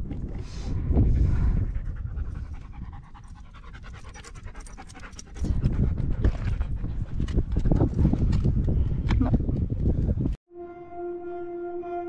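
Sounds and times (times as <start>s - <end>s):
dog panting: 1.6s - 7.0s.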